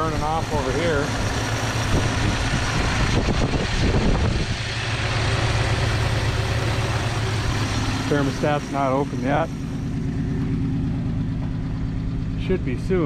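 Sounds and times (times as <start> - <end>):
car engine idling: 0.0 - 13.0.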